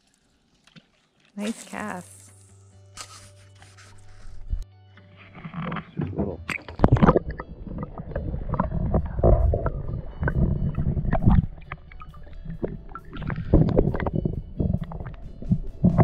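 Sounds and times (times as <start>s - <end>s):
underwater rumbling and gurgling: 5.4s - 16.0s
underwater knocks and clicks: 5.5s - 16.0s.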